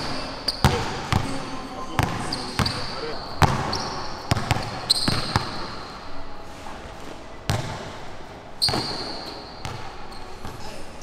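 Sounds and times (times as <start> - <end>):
sneaker squeak: 0.0 - 1.3, 1.9 - 5.9, 8.5 - 10.8
basketball bouncing on court: 0.0 - 5.7, 7.5 - 8.0, 8.6 - 10.6.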